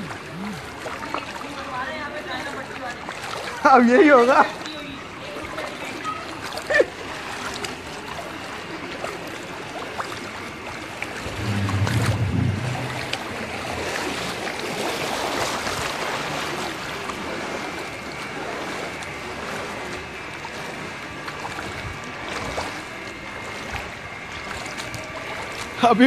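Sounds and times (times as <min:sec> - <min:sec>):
floodwater sloshing and splashing: 0:00.0 - 0:26.0
low rumble: 0:11.2 - 0:13.8.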